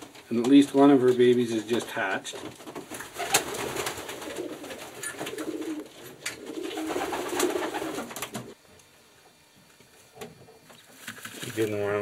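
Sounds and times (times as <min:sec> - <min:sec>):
pigeon cooing: 0:03.2 - 0:08.6.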